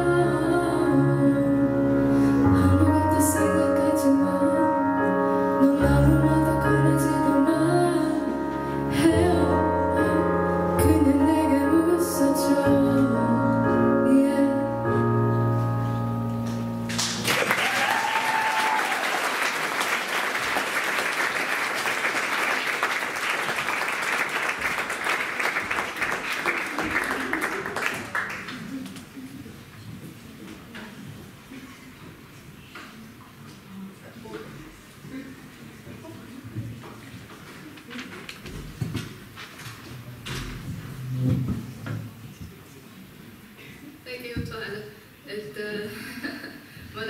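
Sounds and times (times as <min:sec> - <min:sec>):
woman singing: 0:00.0 - 0:15.5
piano accompaniment: 0:00.0 - 0:18.1
audience applause: 0:16.9 - 0:28.9.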